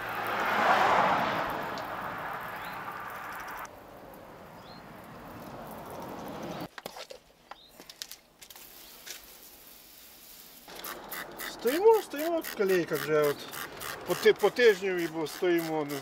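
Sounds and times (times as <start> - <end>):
water drips: 0.0 - 6.6.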